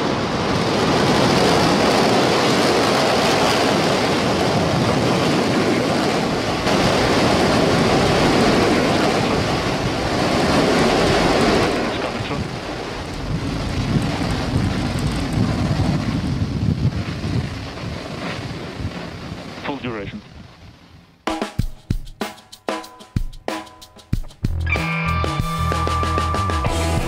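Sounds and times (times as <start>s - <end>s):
rocket engine roaring: 0.0s - 20.9s.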